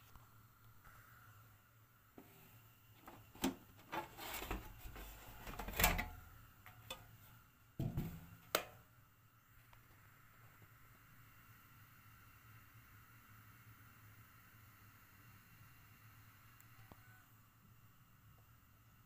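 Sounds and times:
plastic clatter of cover handling: 3.0 - 6.2.

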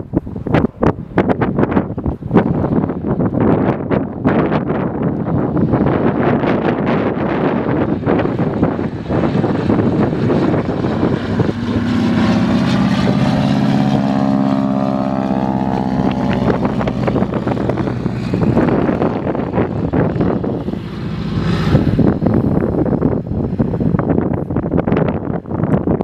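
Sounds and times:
propeller plane engine droning: 0.0 - 26.0
rough rushing noise: 5.3 - 25.2.

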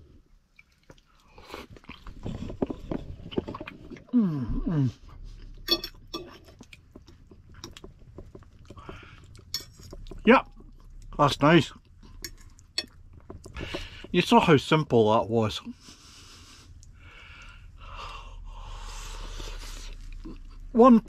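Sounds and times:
man chewing food: 0.0 - 4.1, 5.0 - 11.2, 11.8 - 14.2, 15.8 - 18.2
man humming: 4.1 - 5.2.

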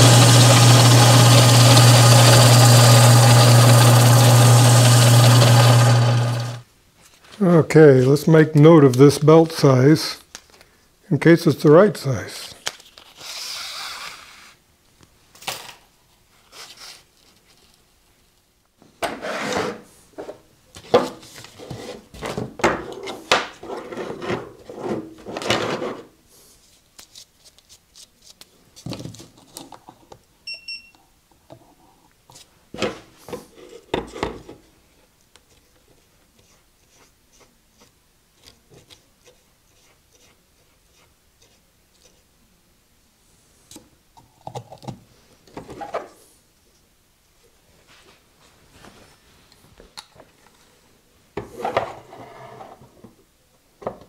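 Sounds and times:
filing a belt end: 38.8 - 42.2.

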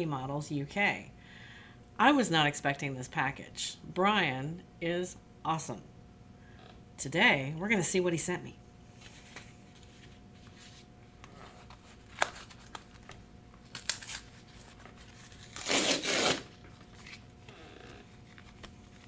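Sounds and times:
cardboard tear strip ripping: 13.6 - 17.2.

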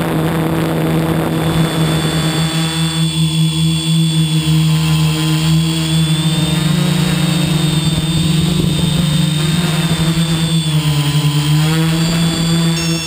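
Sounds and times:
drone motors whining: 0.0 - 13.0
wind buffeting microphone: 5.6 - 12.6.

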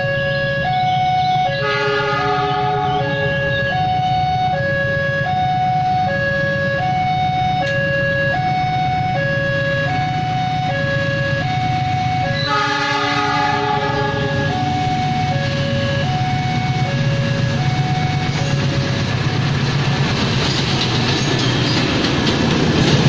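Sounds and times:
level crossing alarm two tones: 0.6 - 18.8
locomotive horn blast: 1.2 - 4.5, 12.2 - 16.6.

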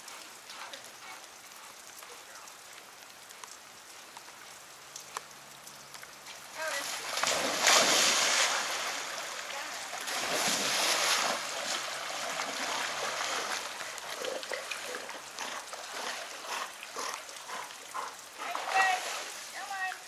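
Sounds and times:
creek water rushing: 4.8 - 20.0
dogs splashing in water: 6.6 - 19.9.

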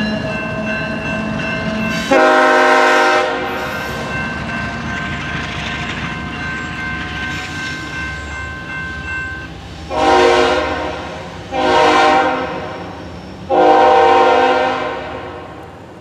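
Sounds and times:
crossing signal ringing: 0.0 - 12.0
locomotive horn blasts: 2.0 - 3.9, 9.9 - 12.8, 13.5 - 15.7.

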